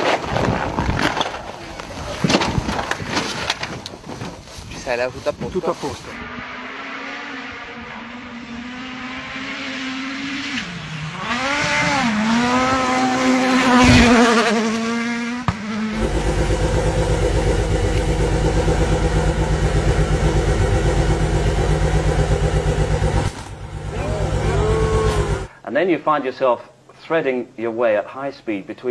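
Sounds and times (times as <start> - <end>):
rally car passing at full speed: 6.1 - 25.5
stationary car engine pulsing: 6.2 - 25.5.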